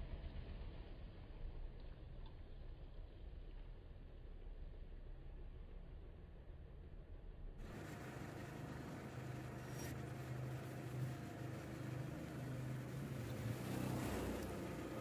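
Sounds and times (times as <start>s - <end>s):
truck engine humming: 7.6s - 15.0s.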